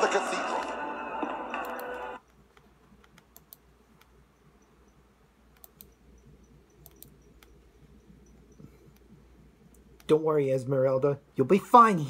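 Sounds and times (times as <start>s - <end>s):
computer mouse clicks: 1.6s - 10.2s.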